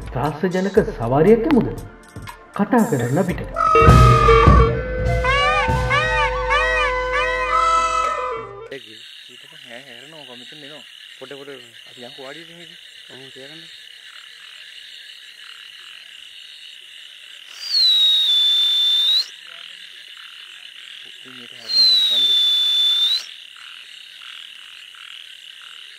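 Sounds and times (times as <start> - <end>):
frogs croaking: 6.8 - 25.9.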